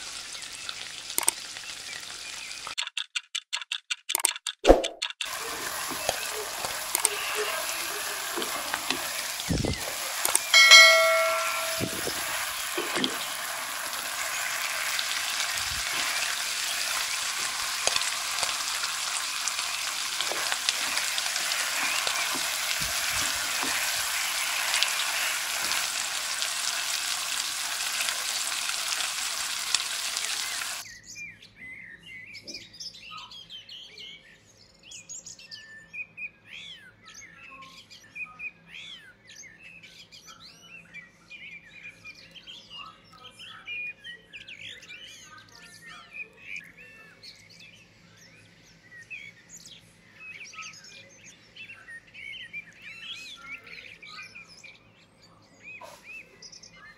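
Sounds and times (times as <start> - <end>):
food sizzling in a pan: 0.0 - 2.8, 5.3 - 30.8
birds chirping: 5.3 - 30.9
short ringing tone: 10.5 - 13.0.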